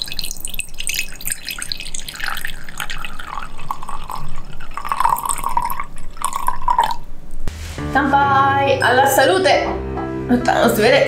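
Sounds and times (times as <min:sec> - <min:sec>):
bottle gurgling: 0:00.0 - 0:07.2.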